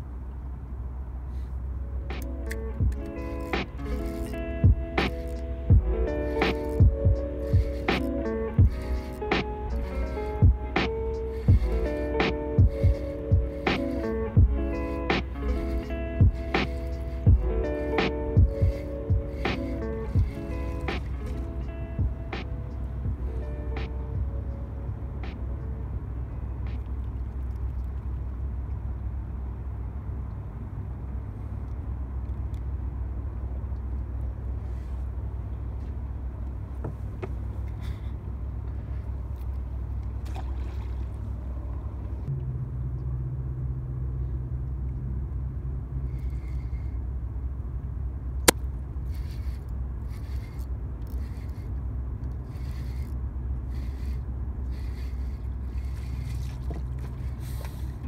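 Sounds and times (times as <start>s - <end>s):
low even hum: 0.0s - 58.0s
steady low rumble: 0.0s - 58.0s
short scraping strokes: 2.1s - 24.0s, 49.1s - 58.0s.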